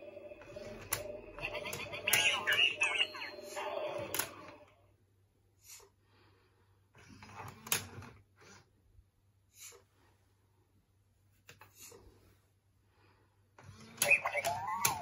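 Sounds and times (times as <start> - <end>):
robot toys electronic sounds: 0.4 - 4.6, 13.8 - 15.0.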